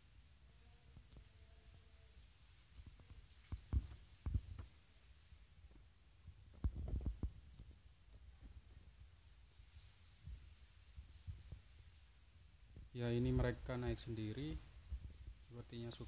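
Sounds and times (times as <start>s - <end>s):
faint high chirping: 0.0s - 5.9s, 6.6s - 16.0s.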